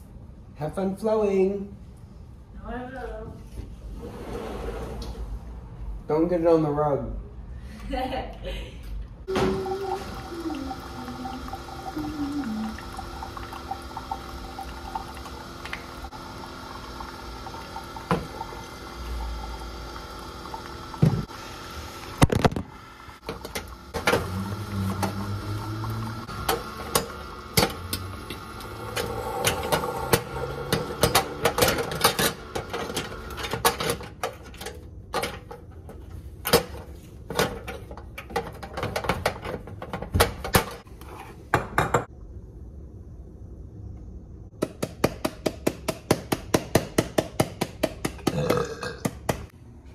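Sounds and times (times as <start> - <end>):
coffee maker pump hum and hiss: 9.2 - 42.4
coffee streaming into a mug: 9.5 - 21.1.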